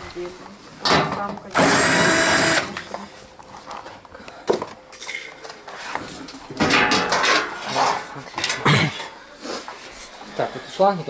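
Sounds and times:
cordless drill running: 1.6s - 2.8s.

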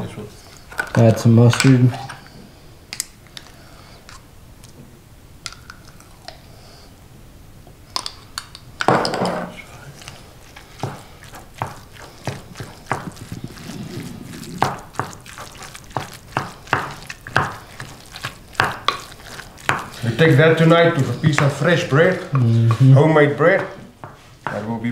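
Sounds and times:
wooden spoon stirring minced meat: 9.6s - 24.8s.

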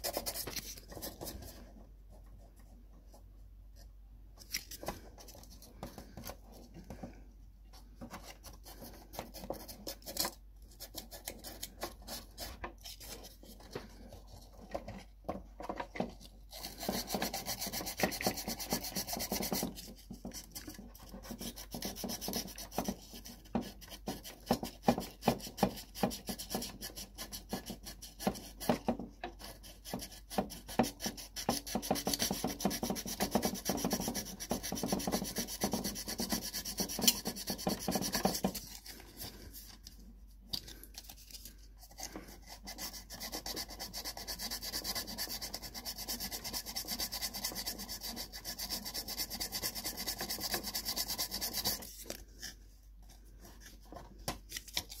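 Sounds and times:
sandpaper rubbing on plastic: 0.0s - 1.6s, 16.5s - 28.8s, 29.4s - 39.5s, 42.0s - 52.2s.

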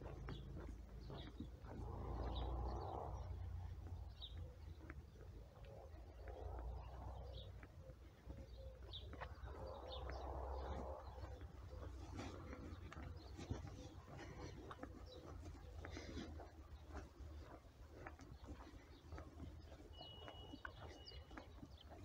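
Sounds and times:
birds chirping: 0.0s - 22.0s
longer lower bird calls: 18.4s - 21.9s.

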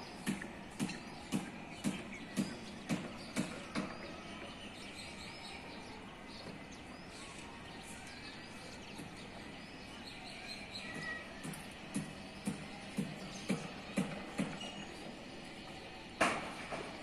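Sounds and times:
town background noise: 0.0s - 17.0s
sharp knock: 16.2s - 16.9s.

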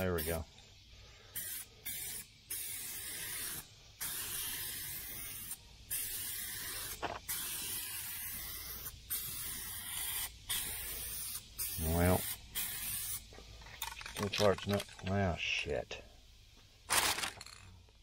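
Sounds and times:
aerosol spray can hissing: 0.0s - 13.6s.

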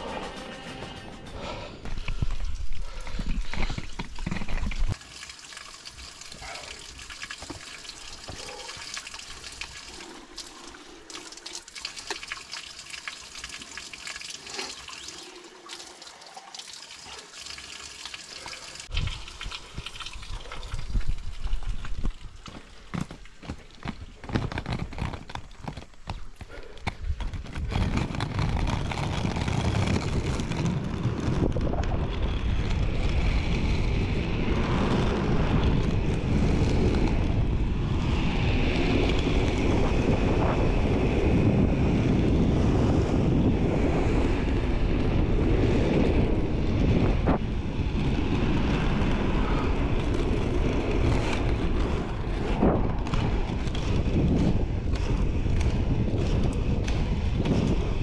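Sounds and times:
skate wheels rolling on asphalt: 1.4s - 6.3s, 20.0s - 58.0s
wind buffeting microphone: 18.9s - 22.5s, 23.4s - 58.0s.

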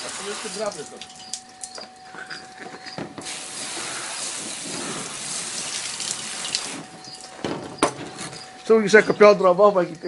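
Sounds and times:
hose nozzle spraying water: 0.0s - 1.8s, 3.2s - 7.3s.

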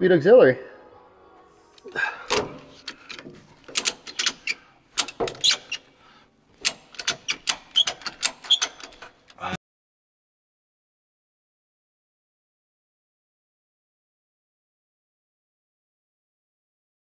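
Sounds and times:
metallic tool clicks and clanks: 2.3s - 5.8s, 6.6s - 9.4s.

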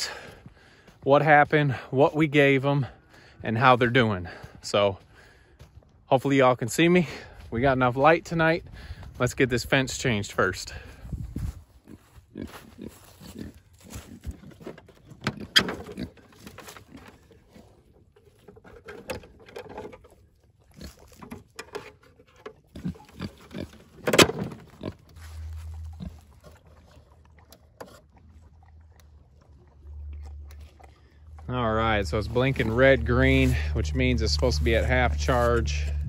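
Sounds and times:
pigs grunting: 11.8s - 18.0s, 20.6s - 21.2s, 22.6s - 24.0s, 24.6s - 36.0s
low rumble: 28.5s - 36.0s.

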